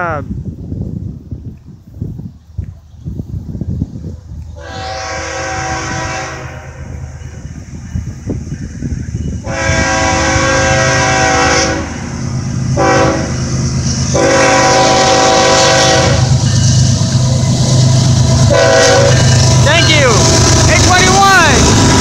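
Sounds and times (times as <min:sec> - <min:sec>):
locomotive air horn blasts: 0:04.6 - 0:07.0, 0:09.4 - 0:12.1, 0:12.7 - 0:13.4, 0:14.1 - 0:16.4, 0:18.5 - 0:19.4
diesel engine rumble: 0:06.5 - 0:22.0.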